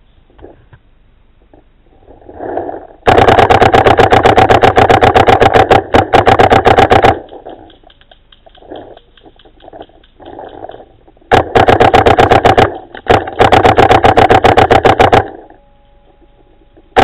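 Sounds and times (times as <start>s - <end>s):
paintball gun rapid firing: 3.0s - 7.8s, 9.6s - 15.5s.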